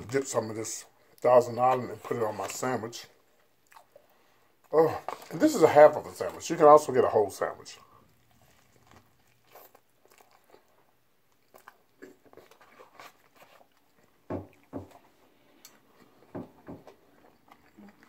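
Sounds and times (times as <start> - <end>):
person chewing: 3.2 - 6.6, 7.8 - 18.0
wet smacks and lip clicks: 3.6 - 4.1.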